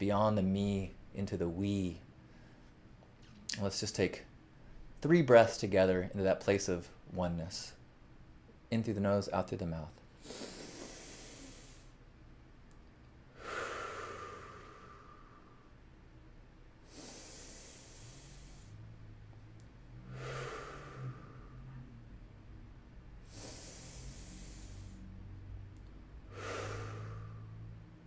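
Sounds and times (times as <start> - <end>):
man breathing deeply: 10.2 - 12.0, 13.3 - 15.8, 16.8 - 18.9, 19.9 - 22.0, 23.2 - 25.2, 26.1 - 28.0.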